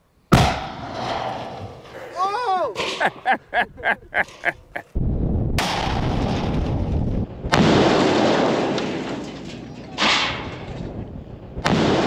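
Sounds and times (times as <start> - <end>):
combustion cannon blast: 0.3 - 1.8, 5.0 - 12.0.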